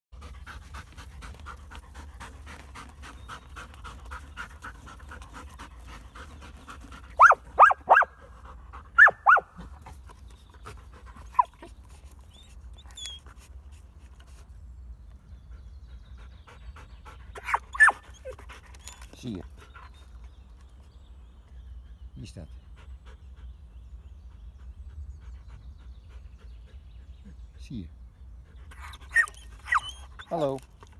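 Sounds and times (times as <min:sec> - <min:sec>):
dog panting: 0:00.2 - 0:07.6, 0:15.4 - 0:20.3, 0:21.5 - 0:27.6.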